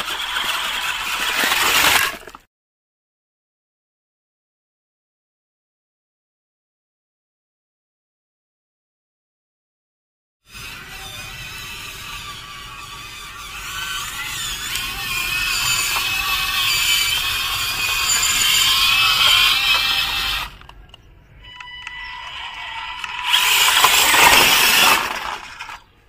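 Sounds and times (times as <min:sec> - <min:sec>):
small electric motor whining: 0:00.0 - 0:02.0, 0:10.5 - 0:20.8, 0:21.4 - 0:25.9
gear rattle: 0:00.0 - 0:02.4, 0:13.8 - 0:20.9, 0:23.1 - 0:25.9.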